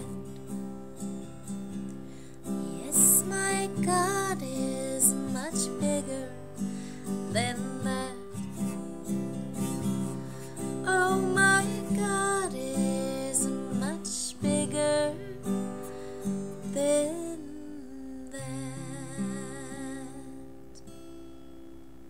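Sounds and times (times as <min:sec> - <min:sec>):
woman singing: 0:00.0 - 0:00.4, 0:02.5 - 0:09.0, 0:09.9 - 0:20.8
acoustic guitar strumming: 0:00.0 - 0:22.0.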